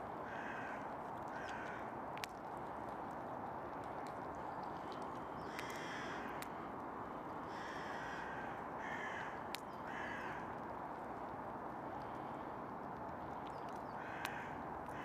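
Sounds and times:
steady background noise: 0:00.0 - 0:15.0
crows cawing: 0:00.2 - 0:02.0, 0:05.4 - 0:06.6, 0:07.4 - 0:10.6, 0:13.9 - 0:15.0.

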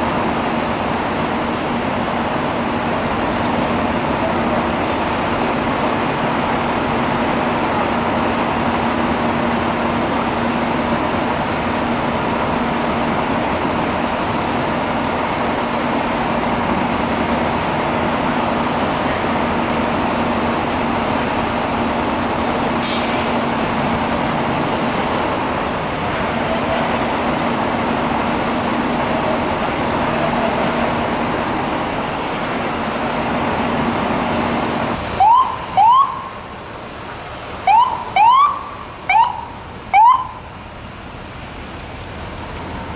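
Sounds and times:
fire engines droning: 0:00.0 - 0:42.9
short hiss: 0:22.8 - 0:23.5
siren chirps: 0:35.2 - 0:36.4, 0:37.7 - 0:40.4.

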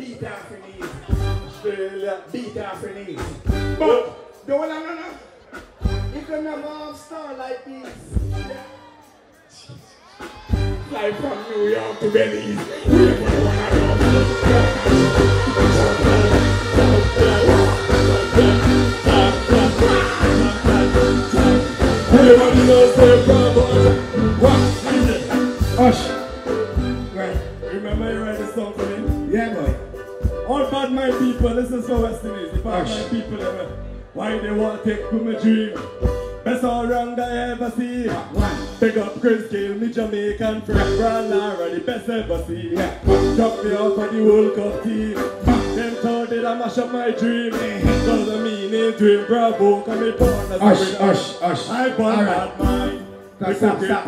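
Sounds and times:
voices over music: 0:00.0 - 0:29.9, 0:36.5 - 0:54.0
live band playing upbeat groove: 0:00.0 - 0:54.0
man singing into a microphone: 0:11.4 - 0:26.3, 0:27.0 - 0:29.8, 0:30.6 - 0:54.0.

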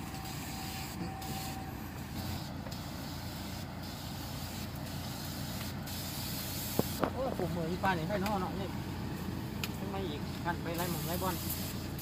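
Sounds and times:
spray nozzle hissing: 0:00.0 - 0:07.1, 0:10.7 - 0:12.0
pressure sprayer pump running: 0:00.0 - 0:12.0.

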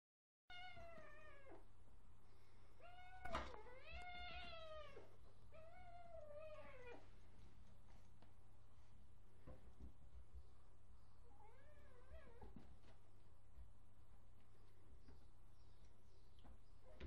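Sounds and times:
cat meowing: 0:02.8 - 0:07.1.

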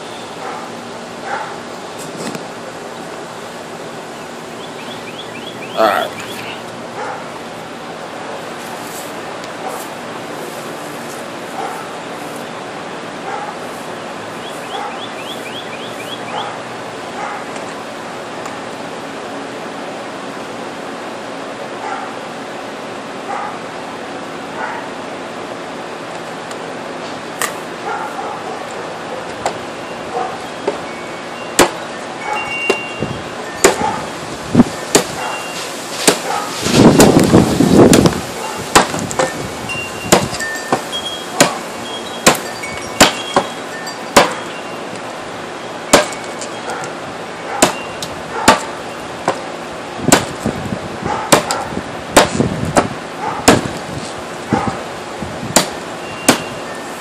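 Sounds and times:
cleaver chopping wooden board: 0:31.6 - 0:31.8, 0:33.6 - 0:33.9, 0:34.9 - 0:35.2, 0:36.0 - 0:36.3, 0:38.7 - 0:39.3, 0:40.1 - 0:41.6, 0:42.2 - 0:42.4, 0:43.0 - 0:43.6, 0:44.2 - 0:44.4, 0:45.9 - 0:46.2, 0:47.6 - 0:47.9, 0:48.5 - 0:49.4, 0:50.1 - 0:50.4, 0:51.3 - 0:51.6, 0:52.2 - 0:53.8, 0:55.6 - 0:56.5.

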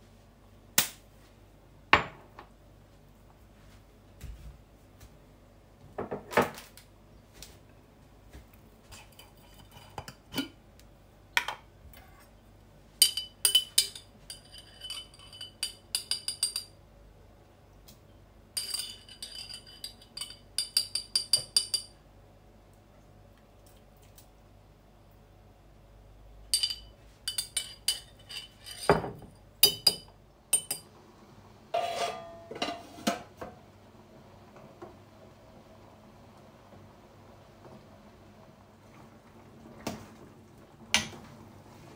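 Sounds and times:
metal spoon clinking on glass jar: 0:13.0 - 0:16.7, 0:18.6 - 0:21.9, 0:26.6 - 0:29.0, 0:29.6 - 0:30.8
pot lid clanking: 0:31.8 - 0:33.3.

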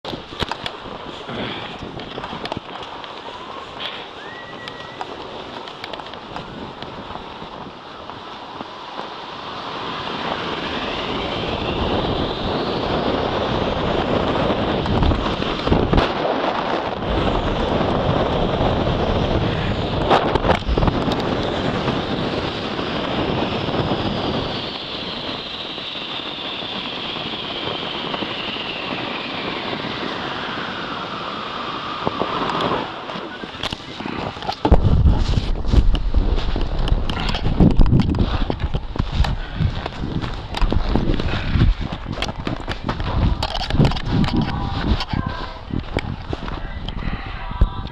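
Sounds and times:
rising whine: 0:00.0 - 0:47.9
wind rushing on microphone: 0:00.0 - 0:47.9
snow hissing under tube: 0:02.9 - 0:05.6, 0:06.6 - 0:42.2.

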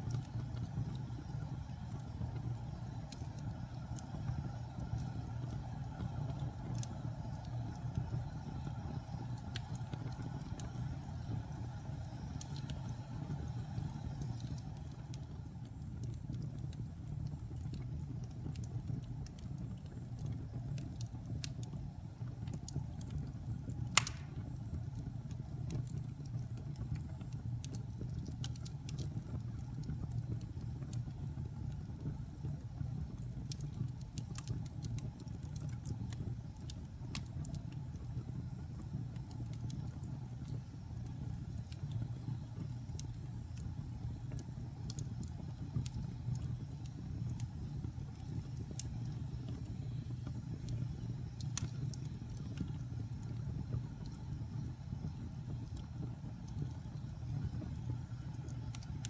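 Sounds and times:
fire crackling in fireplace: 0:00.0 - 0:59.0
loud fire pop: 0:23.9 - 0:24.6.

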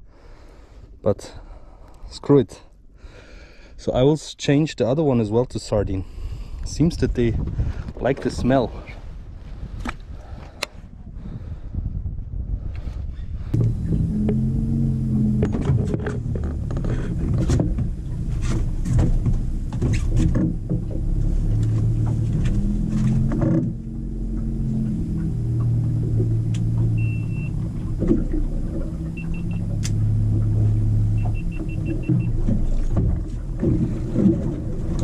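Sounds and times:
boat engine running: 0:13.5 - 0:35.0
high electronic beeps: 0:27.0 - 0:27.6, 0:29.2 - 0:29.6, 0:31.2 - 0:32.4.

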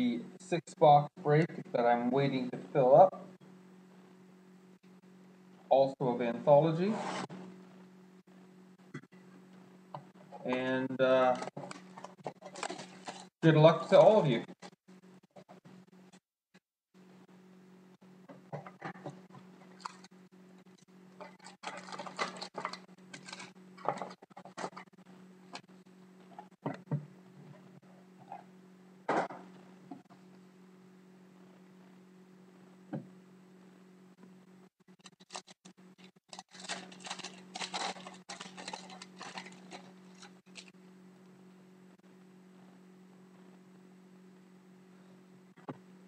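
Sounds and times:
steady low hum: 0:00.0 - 0:16.2, 0:16.9 - 0:46.0
foil packs crinkling: 0:11.2 - 0:14.2, 0:19.6 - 0:20.1, 0:21.2 - 0:24.8, 0:35.1 - 0:40.7.

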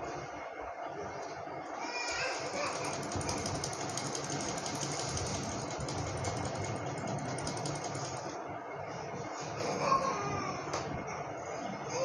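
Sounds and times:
small machine rattling: 0:01.8 - 0:08.5.

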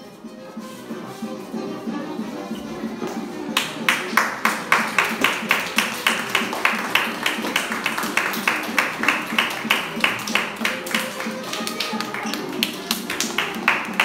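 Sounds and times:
background music: 0:00.0 - 0:14.0
audience clapping in rhythm: 0:03.5 - 0:14.0.

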